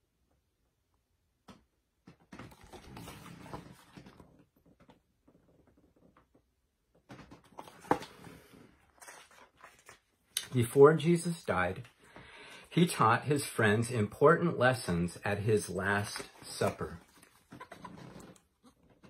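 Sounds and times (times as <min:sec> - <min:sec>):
book pages rustling: 0:02.3 - 0:04.9, 0:07.1 - 0:10.8, 0:15.5 - 0:18.4.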